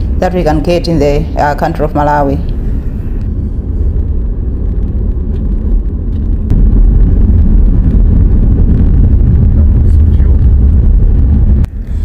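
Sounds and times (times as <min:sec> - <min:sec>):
car road and engine rumble: 0:02.4 - 0:12.0.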